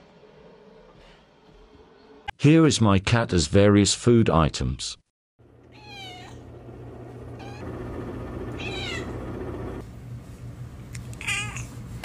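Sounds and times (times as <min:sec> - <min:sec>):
steady low hum: 0:05.4 - 0:11.2
cat meowing: 0:05.7 - 0:06.4, 0:07.4 - 0:07.6, 0:08.5 - 0:09.2, 0:11.2 - 0:11.7.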